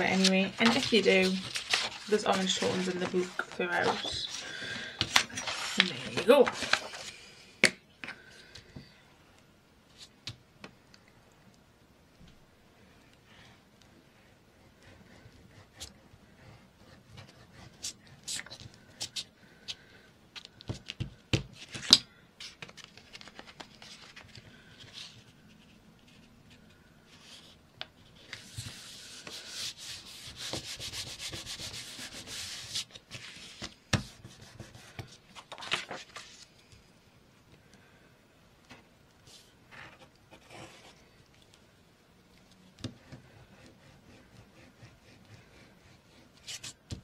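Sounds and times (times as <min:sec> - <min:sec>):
paper rustling and tapping: 0:00.2 - 0:04.3.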